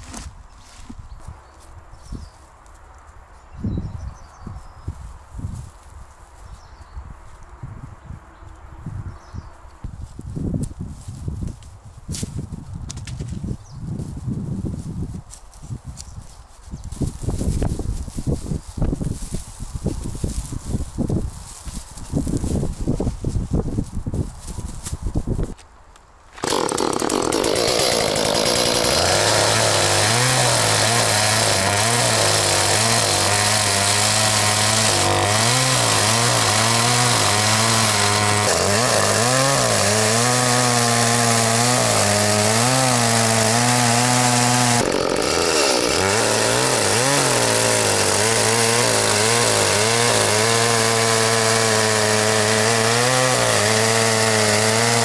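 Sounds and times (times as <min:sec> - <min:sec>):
chainsaw cutting a log: 0:26.3 - 0:55.0.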